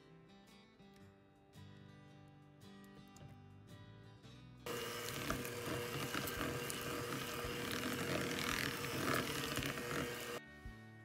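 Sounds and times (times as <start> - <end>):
electric hand mixer motor hum: 4.7 - 10.4.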